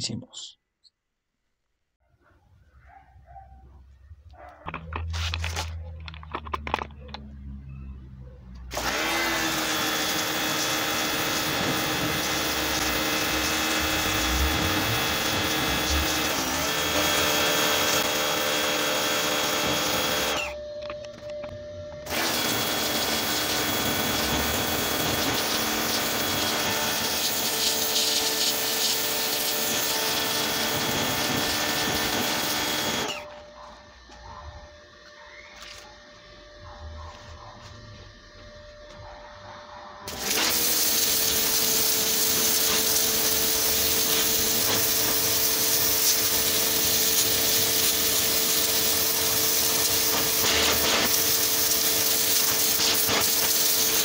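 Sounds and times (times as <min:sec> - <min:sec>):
pressure washer motor whine: 0:08.6 - 0:33.5, 0:40.1 - 0:54.0
water jet hissing on brick: 0:08.8 - 0:18.0, 0:22.1 - 0:33.0, 0:40.1 - 0:54.0.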